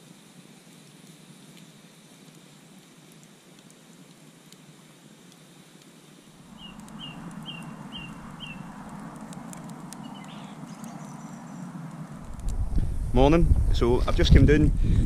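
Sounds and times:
campfire crackling: 0.0s - 15.0s.

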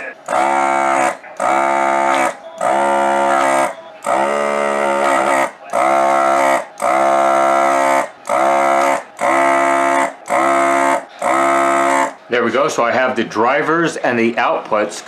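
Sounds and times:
desoldering vacuum pump buzzing: 0.0s - 12.2s.

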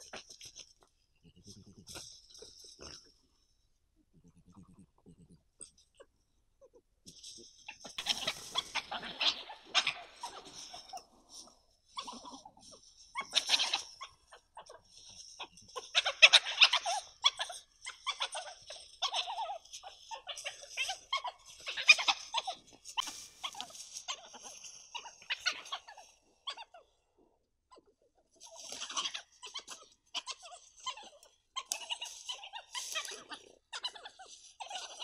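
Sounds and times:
badgers calling: 7.2s - 27.0s, 27.7s - 35.0s.

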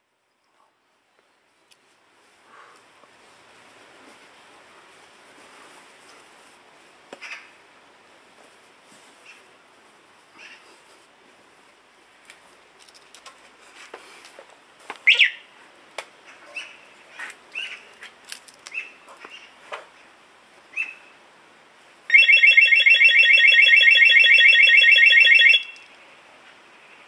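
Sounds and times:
alarm siren pulsing: 22.1s - 25.8s.

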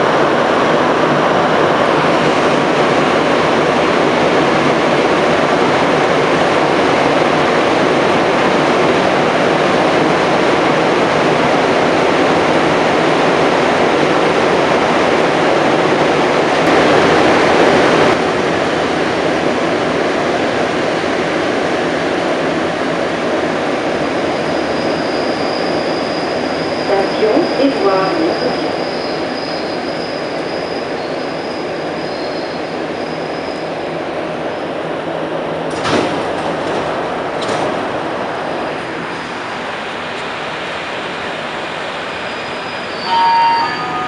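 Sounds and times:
metro car running in tunnel: 0.0s - 44.0s.

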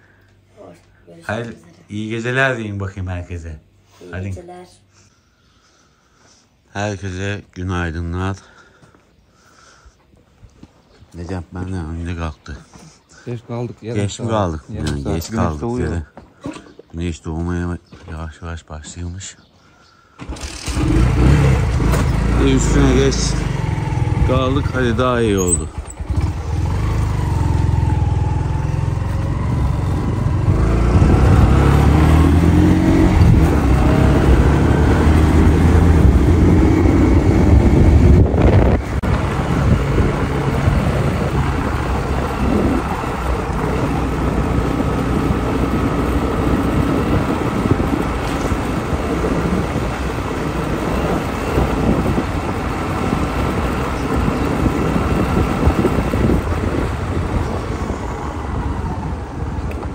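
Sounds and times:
small motorcycle engine: 20.2s - 59.9s.

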